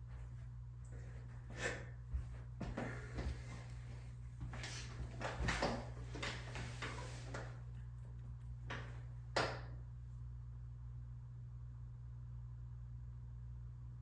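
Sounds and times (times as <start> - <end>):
steady low hum: 0.0 - 14.0
rustling and soft knocks: 2.1 - 7.7.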